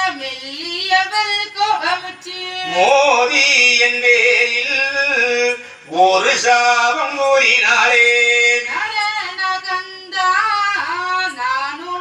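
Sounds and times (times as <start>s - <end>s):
person chanting melodically: 2.6s - 9.0s.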